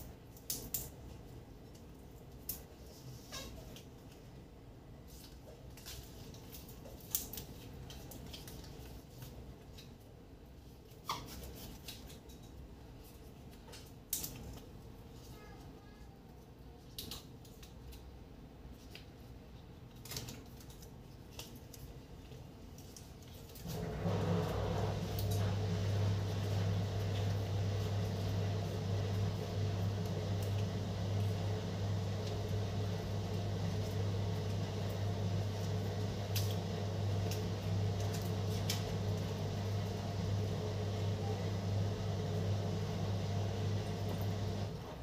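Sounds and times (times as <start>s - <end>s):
kitchen appliance motor hum: 23.6s - 45.0s.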